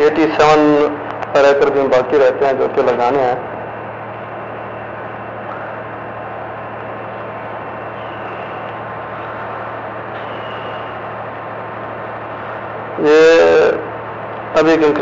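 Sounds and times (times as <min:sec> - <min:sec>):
construction machinery drone: 0:00.0 - 0:15.0
faint high whines: 0:00.0 - 0:15.0.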